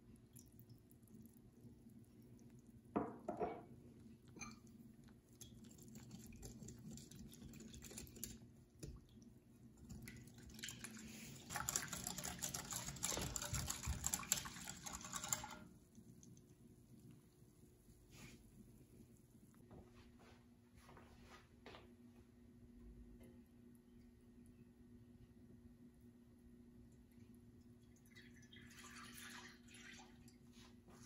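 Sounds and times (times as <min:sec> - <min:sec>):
liquid sloshing: 0:09.8 - 0:15.7, 0:28.0 - 0:30.7
whisk ticking against glass bowl: 0:11.5 - 0:15.6.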